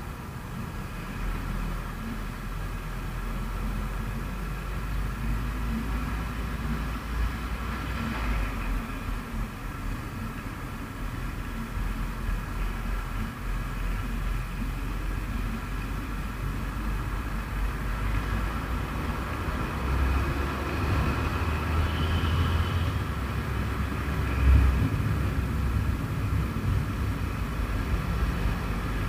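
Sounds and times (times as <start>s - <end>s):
wind and road rumble: 0.0s - 29.0s.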